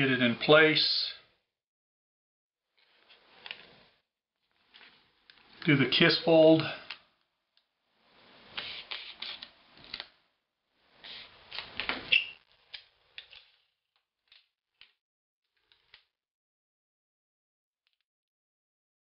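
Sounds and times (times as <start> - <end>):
paper rustling and crinkling: 8.5 - 10.1.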